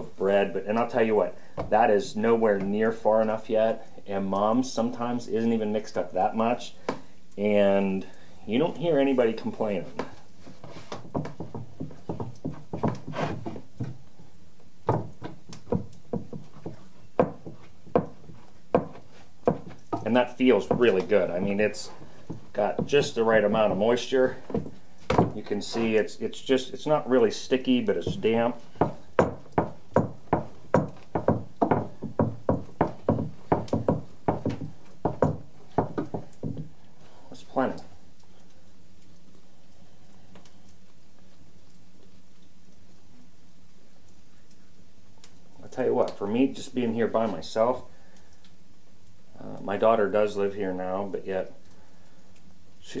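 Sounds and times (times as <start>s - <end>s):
dough thumping on wooden board: 14.9s - 20.1s, 24.5s - 25.4s, 28.1s - 36.7s.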